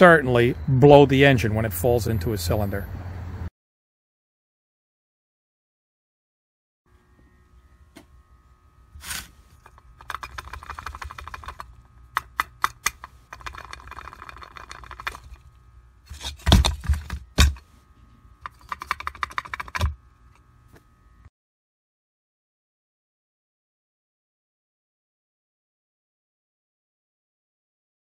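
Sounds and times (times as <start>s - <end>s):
loose metal terminal rattling: 9.6s - 15.6s, 16.3s - 17.6s, 18.4s - 20.4s.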